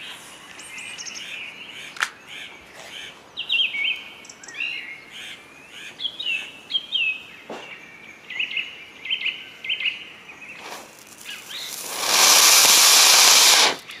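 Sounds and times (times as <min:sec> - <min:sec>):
firework fountain hissing: 0:10.6 - 0:13.9.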